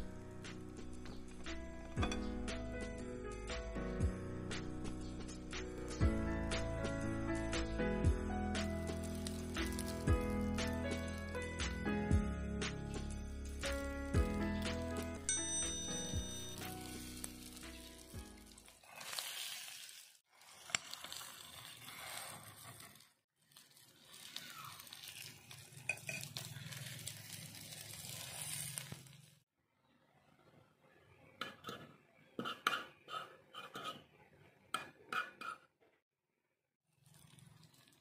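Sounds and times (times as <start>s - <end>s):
cutlery clinking and scraping pan: 1.8s - 2.6s, 25.1s - 27.0s, 31.4s - 34.1s
food sizzling on hot plate: 8.5s - 11.8s, 12.8s - 15.3s, 15.9s - 29.4s.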